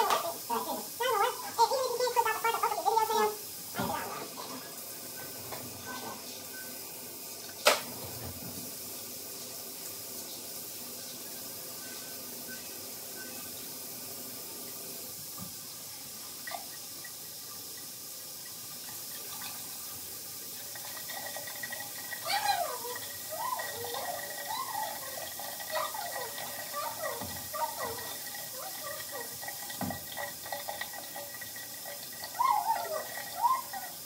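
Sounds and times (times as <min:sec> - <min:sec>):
tap running into basin: 0:16.3 - 0:34.0.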